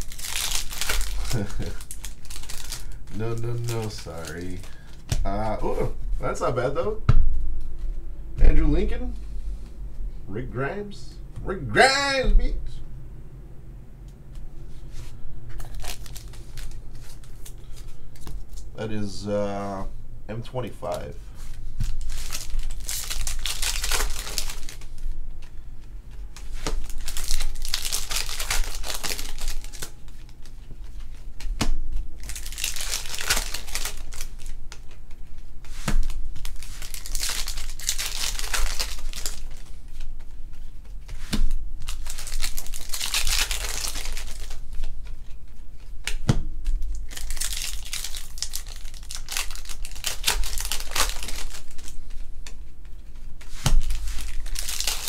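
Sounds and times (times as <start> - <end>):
plastic wrappers crinkling: 0.0 - 5.3, 15.5 - 18.8, 20.8 - 25.2, 26.3 - 55.0.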